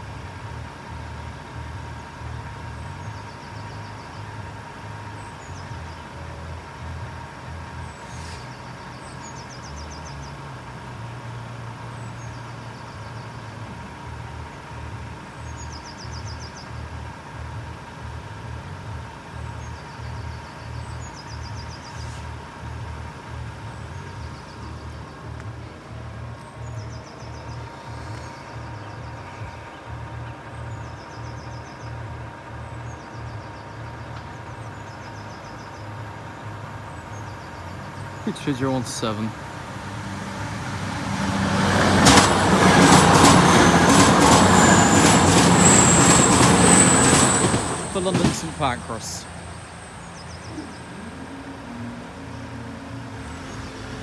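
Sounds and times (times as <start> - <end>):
birds trilling: 41.6 - 54.0.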